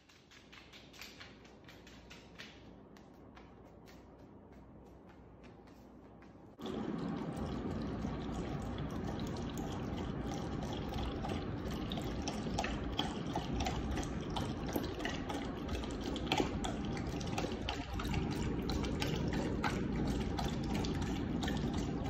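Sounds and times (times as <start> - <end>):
dog lapping water: 6.6 - 22.0.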